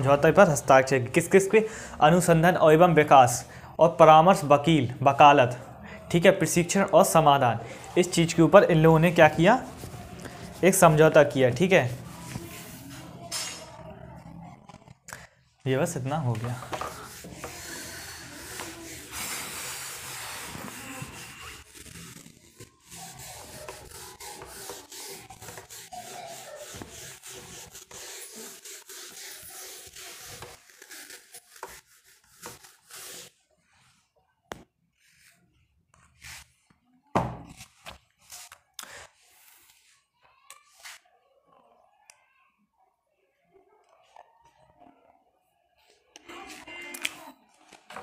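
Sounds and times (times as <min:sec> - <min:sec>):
pen scratching while handwriting: 0:16.6 - 0:33.3.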